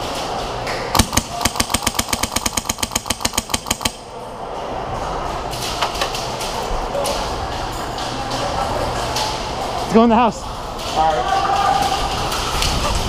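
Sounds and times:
airsoft rifle full-auto burst: 0:01.0 - 0:04.0.

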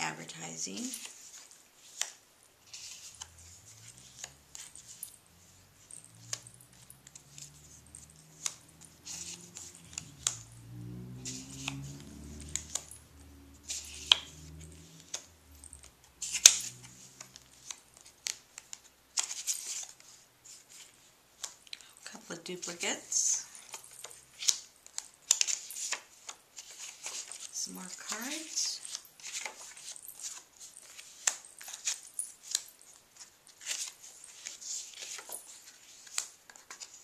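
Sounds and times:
paper cards rustling: 0:00.7 - 0:05.0, 0:23.6 - 0:27.5, 0:28.1 - 0:32.6, 0:33.2 - 0:37.0.

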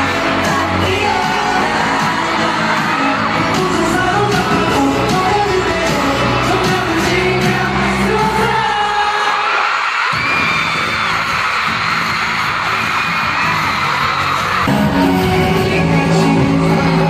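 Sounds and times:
bass line: 0:00.0 - 0:09.0, 0:13.3 - 0:17.0
pop music with singing: 0:00.0 - 0:17.0.

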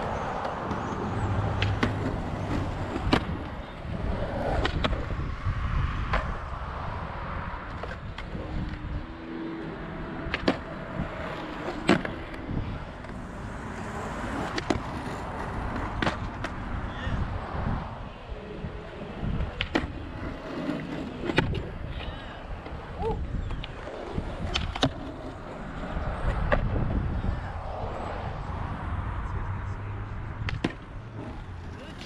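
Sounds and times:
skateboards clacking on concrete: 0:00.0 - 0:05.2, 0:07.6 - 0:08.8, 0:09.4 - 0:16.8, 0:18.3 - 0:26.8, 0:30.4 - 0:32.0
skateboard wheels rolling on concrete: 0:00.0 - 0:32.0.

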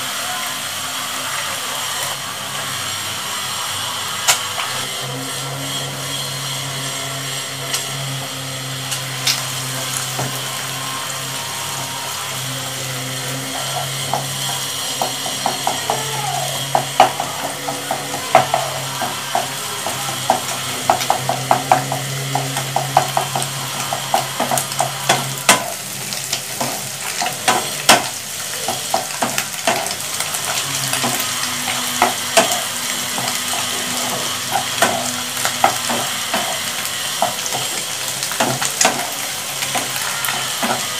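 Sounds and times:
vegetables and egg sizzling in pan: 0:00.0 - 0:40.9
spatula scraping and tapping pan: 0:13.2 - 0:40.9.

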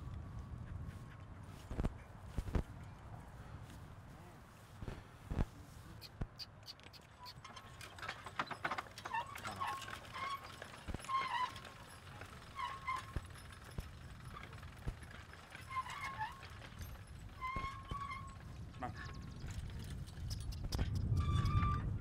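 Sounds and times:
hooves clopping: 0:04.8 - 0:21.8
short high squeaks: 0:06.0 - 0:13.6, 0:15.6 - 0:19.5, 0:20.2 - 0:22.0
planter clicking and rattling: 0:06.6 - 0:21.8.

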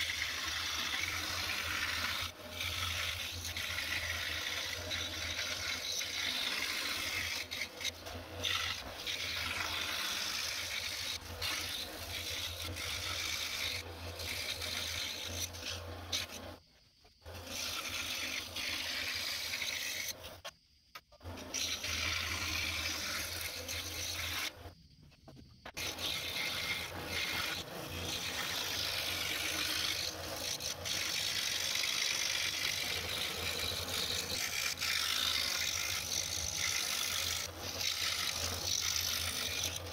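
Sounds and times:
scroll saw cutting wood: 0:00.0 - 0:20.6, 0:21.2 - 0:24.8, 0:25.6 - 0:39.9.

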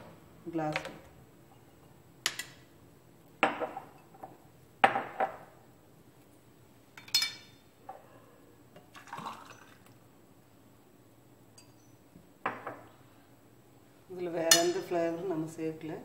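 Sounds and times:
glasses knocking on counter: 0:03.4 - 0:04.0, 0:04.8 - 0:05.5, 0:12.4 - 0:12.9.

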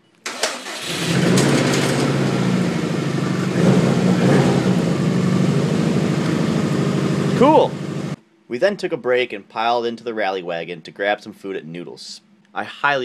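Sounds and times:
car engine running: 0:00.8 - 0:08.2.

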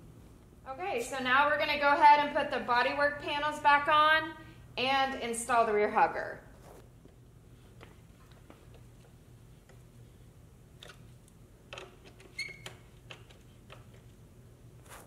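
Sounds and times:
short squeak: 0:12.3 - 0:12.8.

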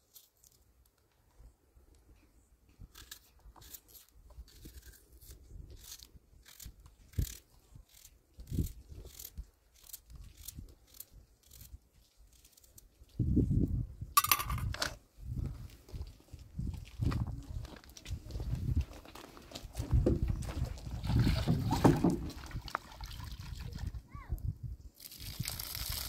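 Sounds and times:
sharp clatter: 0:14.2 - 0:15.0.

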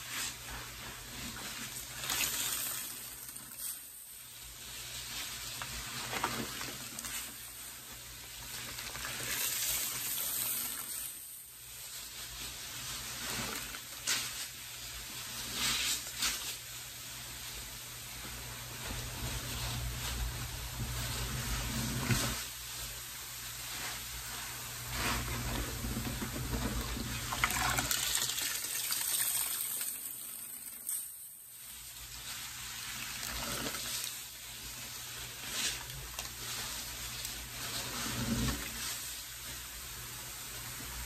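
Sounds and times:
water trickling into bucket: 0:27.1 - 0:30.9.

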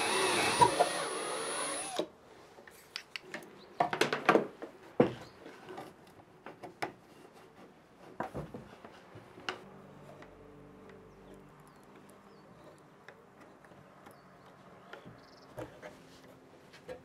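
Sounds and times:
hands handling plywood: 0:02.6 - 0:09.6.

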